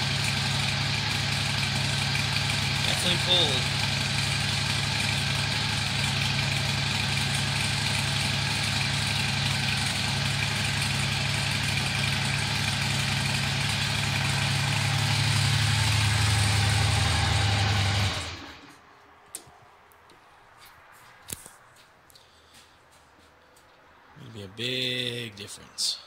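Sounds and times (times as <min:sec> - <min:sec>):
motorcycle engine idling: 0:00.0 - 0:18.7.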